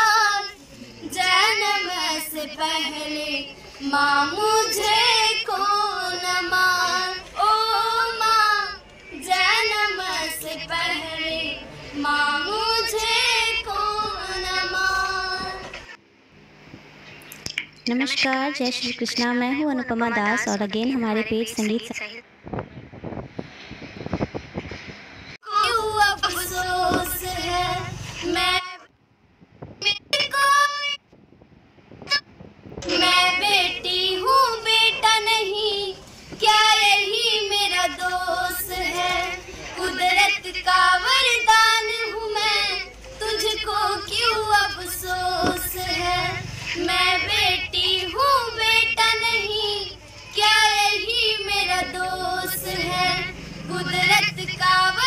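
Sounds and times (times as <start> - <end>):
high singing voice: 0.0 - 16.0, 25.4 - 28.9, 29.8 - 31.0, 32.1 - 55.0.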